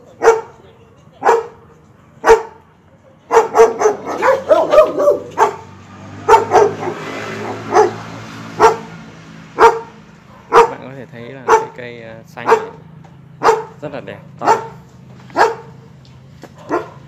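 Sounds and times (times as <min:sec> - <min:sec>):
dog barking: 0:00.1 - 0:00.6, 0:01.2 - 0:01.6, 0:02.2 - 0:02.6, 0:03.3 - 0:09.0, 0:09.6 - 0:10.8, 0:11.4 - 0:11.8, 0:12.4 - 0:12.8, 0:13.4 - 0:13.8, 0:14.4 - 0:15.8, 0:16.4 - 0:17.0.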